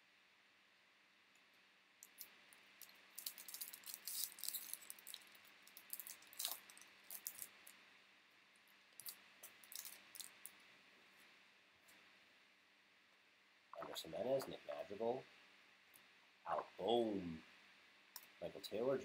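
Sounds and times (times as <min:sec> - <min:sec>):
wrapper and cards crinkling: 0:02.8 - 0:07.6.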